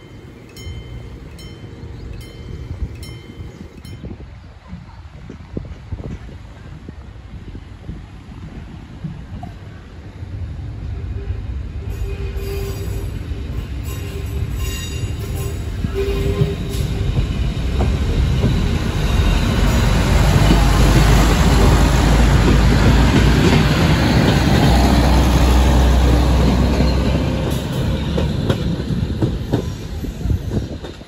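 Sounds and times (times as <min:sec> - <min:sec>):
train wheels clattering on rails: 0:13.4 - 0:31.0.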